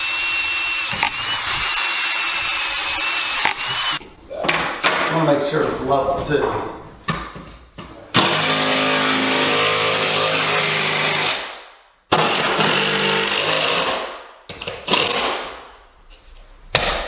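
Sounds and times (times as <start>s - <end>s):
power driver driving screws into wood: 0.0s - 4.0s, 12.1s - 15.5s.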